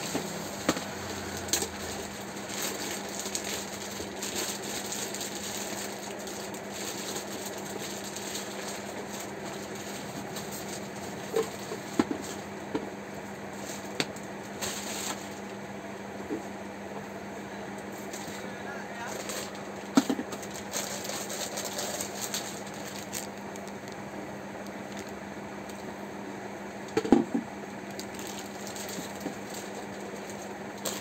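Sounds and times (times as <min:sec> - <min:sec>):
plastic bags crinkling: 0:00.0 - 0:12.4, 0:13.6 - 0:15.5, 0:19.0 - 0:24.0, 0:24.6 - 0:25.8, 0:27.9 - 0:31.0
steady low hum: 0:00.0 - 0:31.0.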